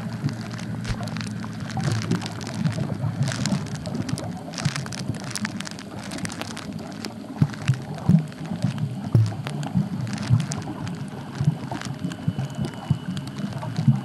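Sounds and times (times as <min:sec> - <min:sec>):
low muffled rumble: 0:00.0 - 0:14.0
underwater crackling and clicking: 0:00.0 - 0:14.0.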